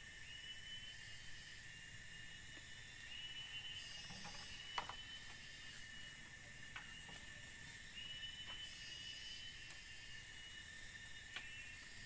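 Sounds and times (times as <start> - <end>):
high-pitched insect buzzing: 0.0 - 12.0.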